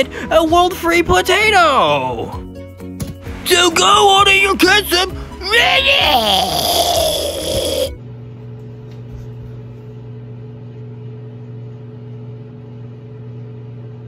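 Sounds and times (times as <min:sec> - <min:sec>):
music: 0:00.0 - 0:08.6
person speaking: 0:03.5 - 0:07.9
microwave oven humming: 0:07.0 - 0:14.0.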